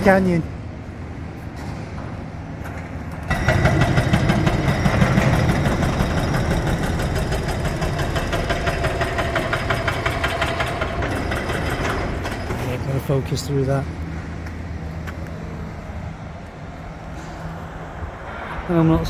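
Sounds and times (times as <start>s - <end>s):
excavator engine running: 3.0s - 17.1s
hydraulic breaker hammering concrete: 3.3s - 12.8s.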